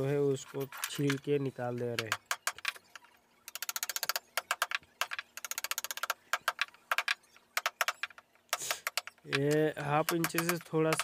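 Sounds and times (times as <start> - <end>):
hammer tapping a chisel: 3.6 - 11.0.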